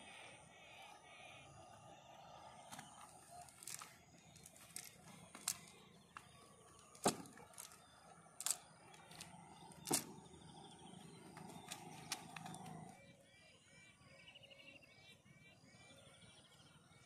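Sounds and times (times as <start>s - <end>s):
faint high-pitched hum: 0.0s - 17.0s
cast net clicks and knocks: 3.5s - 5.8s, 6.8s - 7.8s, 8.4s - 10.2s.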